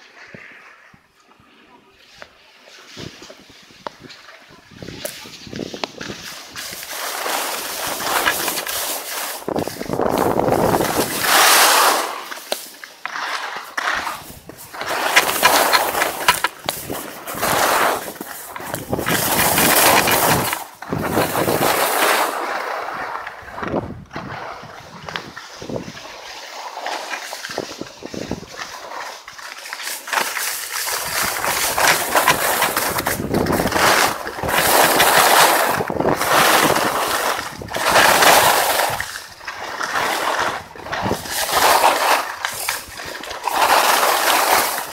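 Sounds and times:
skis scraping over snow: 0.0s - 44.9s.

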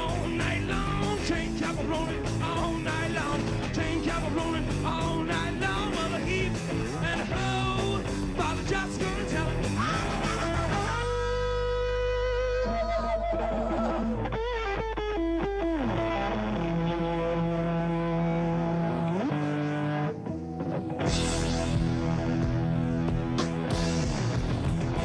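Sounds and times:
hard rock band playing: 0.0s - 12.7s, 13.3s - 25.0s
person singing: 0.0s - 14.3s
held distorted guitar note: 9.8s - 25.0s.

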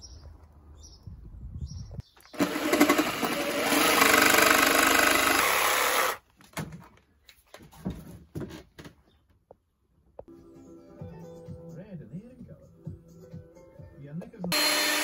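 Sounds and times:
jigsaw cutting wood: 2.3s - 6.2s, 14.5s - 15.0s.

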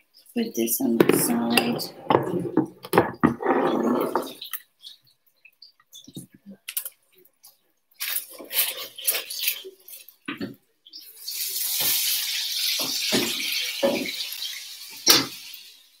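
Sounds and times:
kitchenware clattering: 0.8s - 4.6s, 12.7s - 15.4s.

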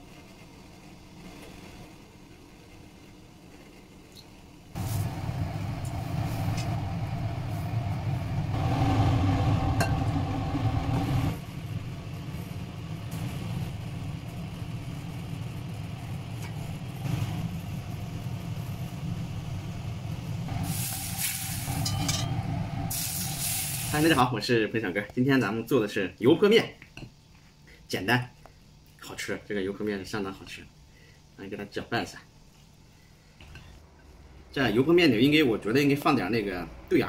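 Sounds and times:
hot oil sizzling: 0.0s - 24.5s
low rumble of kitchen noise: 0.0s - 37.0s.

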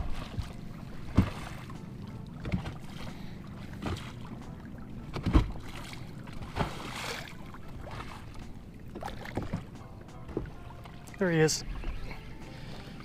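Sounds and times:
waves splashing against boat: 0.0s - 13.0s
knocks on boat hull: 1.1s - 1.5s, 5.1s - 5.6s.

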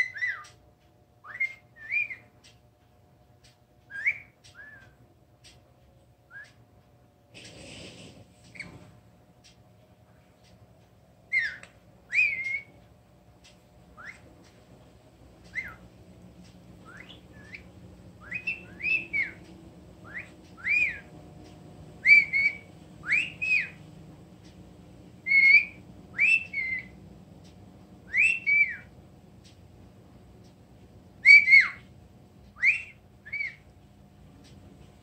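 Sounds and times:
parrot whistling: 0.0s - 0.5s, 1.2s - 2.3s, 3.9s - 5.0s, 11.3s - 12.8s, 14.0s - 14.3s, 15.5s - 15.9s, 16.8s - 19.4s, 20.0s - 21.1s, 22.0s - 23.8s, 25.2s - 27.0s, 28.0s - 28.9s, 31.2s - 31.9s, 32.6s - 33.7s.

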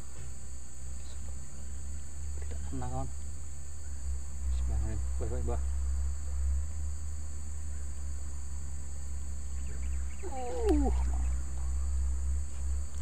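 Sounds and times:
crickets and insects buzzing: 0.0s - 13.0s
wavering cry falling in pitch: 10.1s - 11.5s.

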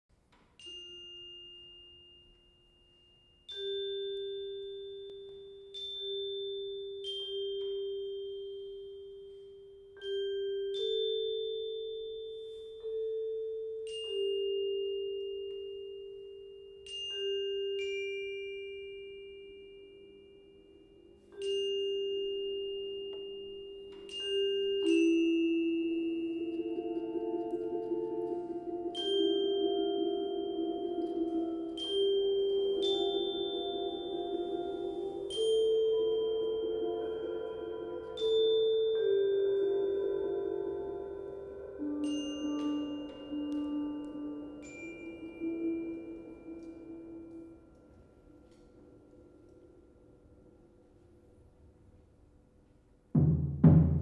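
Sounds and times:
mallet percussion notes: 0.3s - 51.6s, 53.1s - 54.0s.

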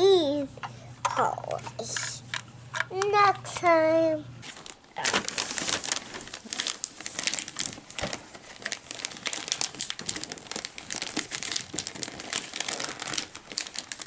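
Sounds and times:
wrapping paper crinkling and tearing: 4.4s - 14.0s.

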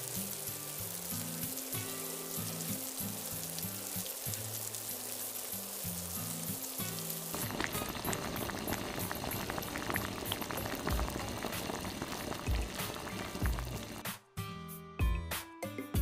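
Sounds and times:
water boiling in a frying pan: 0.0s - 14.1s
light background music: 0.0s - 16.0s
tap water running into a bowl: 0.3s - 14.0s.

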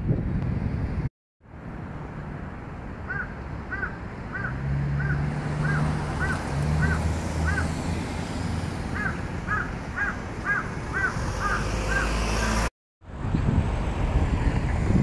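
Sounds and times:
crow cawing: 3.1s - 7.7s, 8.9s - 12.2s.

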